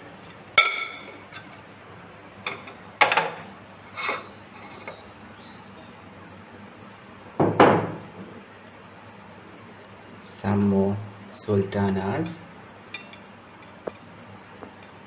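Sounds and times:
glass bowl clinking on plate: 0.6s - 1.5s, 13.0s - 14.0s.

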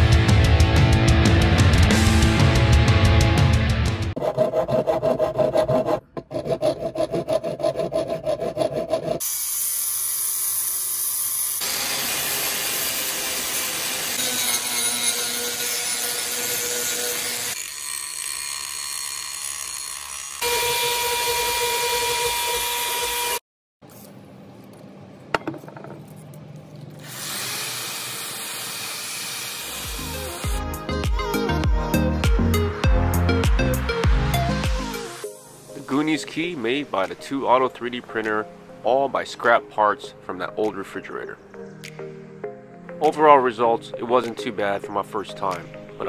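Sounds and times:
hand file rasping on metal: 4.2s - 11.6s
angle grinder grinding: 4.5s - 23.4s, 27.0s - 30.6s
electric drill sanding: 9.2s - 23.4s, 27.0s - 30.6s.

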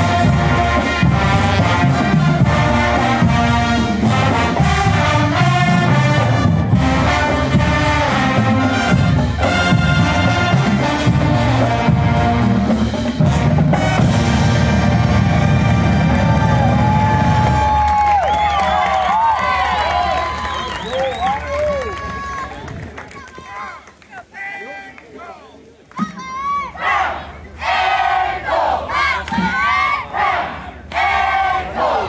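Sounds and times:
brass horns playing tune: 0.0s - 17.8s
steady drum beat: 0.0s - 18.2s.

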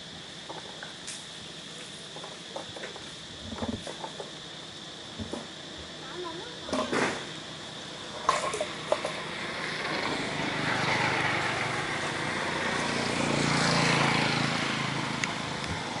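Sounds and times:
vehicle passing: 9.3s - 16.0s.

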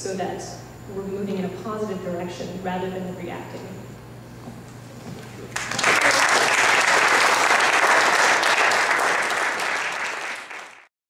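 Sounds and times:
audience applauding: 5.5s - 10.9s.

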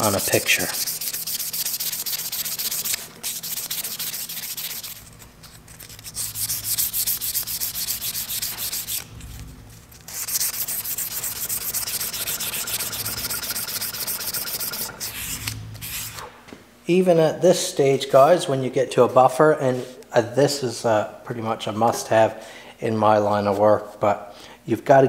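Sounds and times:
sandpaper scratching strokes: 0.0s - 9.1s, 10.1s - 16.3s.

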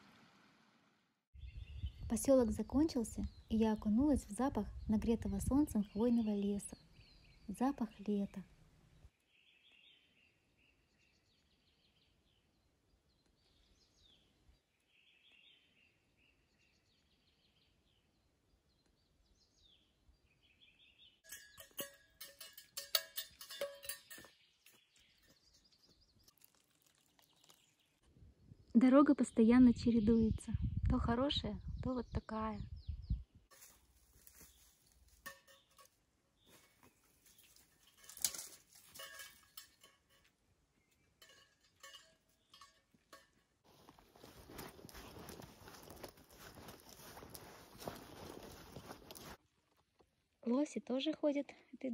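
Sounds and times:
rapid ringing clinking and rattling: 21.3s - 24.4s, 37.6s - 40.3s, 41.2s - 43.4s
footsteps on dirt road: 33.5s - 35.7s, 43.6s - 49.4s.

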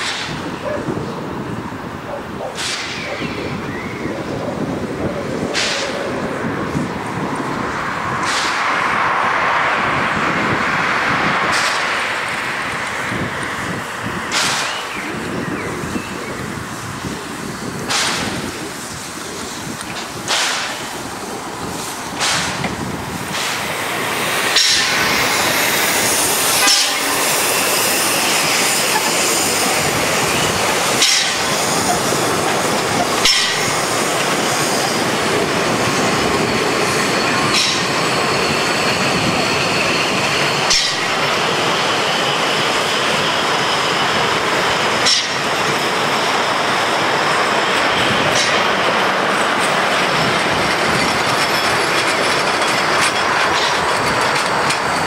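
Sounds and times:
train rushing noise: 0.0s - 55.0s
wheels clicking over rail joints: 11.4s - 15.4s, 17.0s - 55.0s
faint high wheel squeal: 24.8s - 46.4s.

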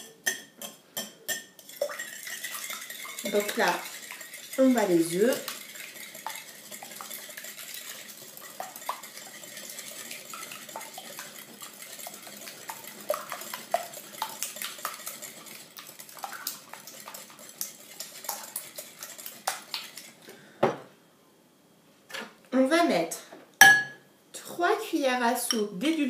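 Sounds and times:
whisk beating eggs in glass bowl: 0.0s - 20.2s.

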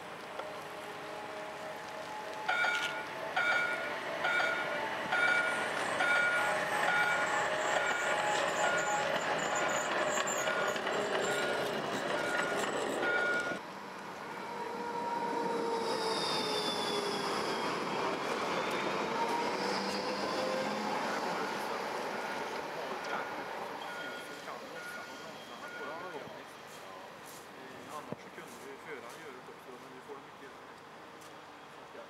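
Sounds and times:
tram traction motors whining: 0.0s - 26.5s
tram rumbling past on rails: 0.0s - 27.2s
short beeps: 23.8s - 26.2s.

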